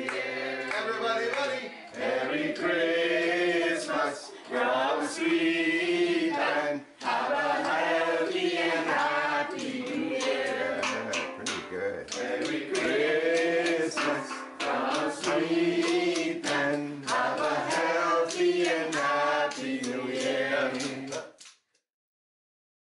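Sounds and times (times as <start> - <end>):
group of voices singing: 0.0 - 21.4
steel pans struck: 10.0 - 12.0.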